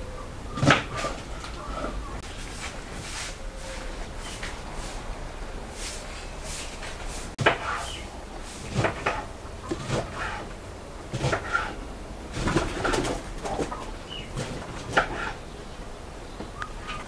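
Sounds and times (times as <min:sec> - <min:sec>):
birds calling: 0:00.0 - 0:17.0.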